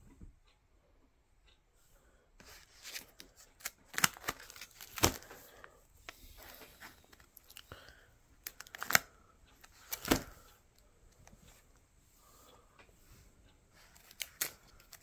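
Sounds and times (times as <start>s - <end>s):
plastic sleeves crinkling: 2.4s - 5.6s, 8.4s - 10.4s, 13.8s - 15.0s.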